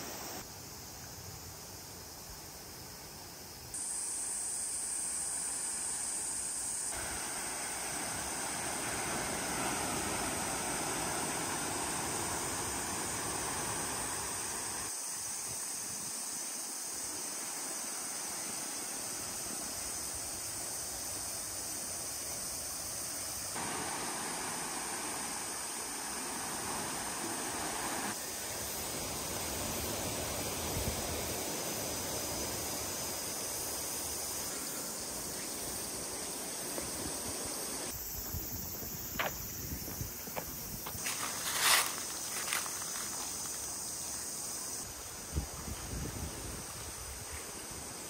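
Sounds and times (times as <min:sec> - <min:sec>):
waves washing over pebbles: 0:07.0 - 0:14.9, 0:23.6 - 0:32.6.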